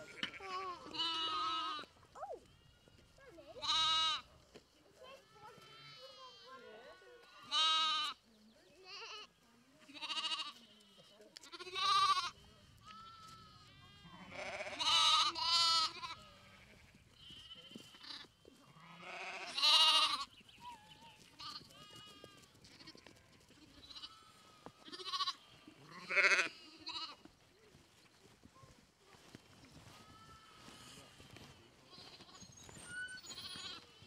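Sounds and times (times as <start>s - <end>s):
lambs bleating: 0.0s - 1.9s, 3.5s - 4.3s, 5.2s - 8.2s, 9.9s - 10.9s, 11.5s - 20.3s, 21.4s - 27.2s, 33.2s - 33.9s.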